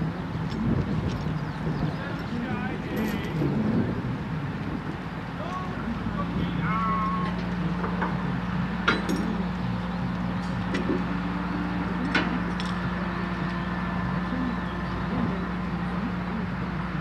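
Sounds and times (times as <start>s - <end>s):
diesel engine humming: 0.0s - 17.0s
sharp metallic clinks: 2.9s - 3.4s, 8.8s - 9.4s.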